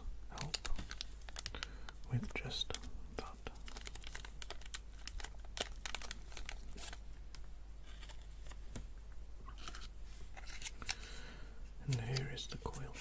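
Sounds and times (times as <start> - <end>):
plastic bag crinkling: 0.4 - 7.1.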